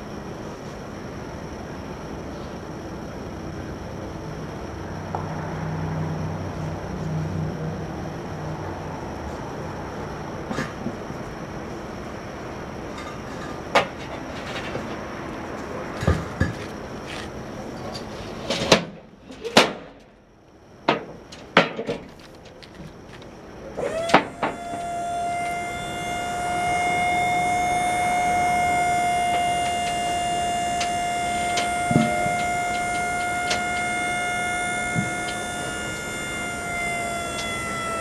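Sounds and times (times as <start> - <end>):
hydraulic pump whining: 13.6 - 18.1, 22.1 - 38.0.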